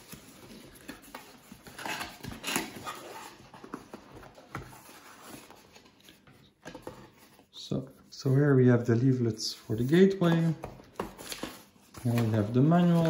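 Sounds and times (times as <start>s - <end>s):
cardboard scraping and rustling: 9.6s - 13.0s.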